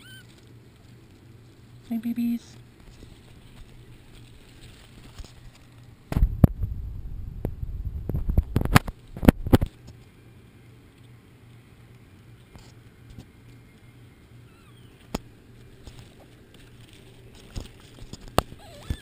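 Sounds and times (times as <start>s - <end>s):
camera handling rumble: 2.8s - 6.6s, 15.0s - 19.0s.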